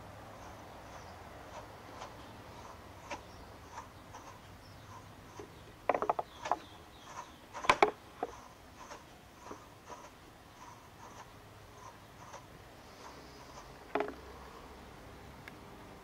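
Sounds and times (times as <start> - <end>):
wooden wool picker clacking: 0.4 - 14.3
rattling knocks: 5.3 - 6.7, 7.6 - 9.0, 13.9 - 14.3.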